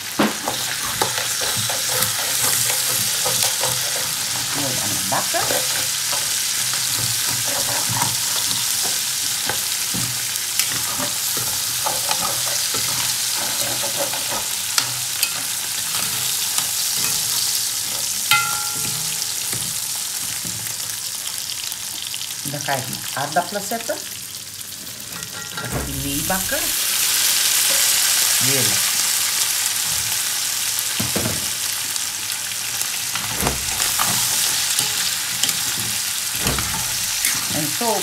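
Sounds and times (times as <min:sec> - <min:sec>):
oil sizzling in a pan: 0:00.0 - 0:38.0
spoon scraping a pan: 0:00.4 - 0:20.9, 0:24.9 - 0:28.4, 0:33.2 - 0:38.0
metallic ring: 0:18.3 - 0:19.5.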